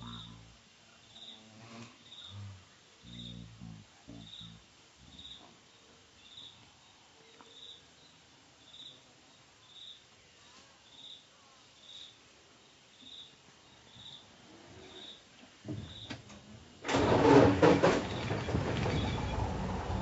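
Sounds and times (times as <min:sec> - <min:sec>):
cricket chirping: 0:00.0 - 0:10.1, 0:10.8 - 0:16.2.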